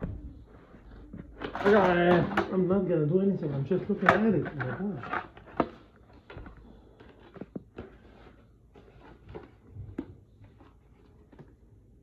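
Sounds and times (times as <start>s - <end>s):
knocks and clicks of objects handled: 3.9s - 11.6s.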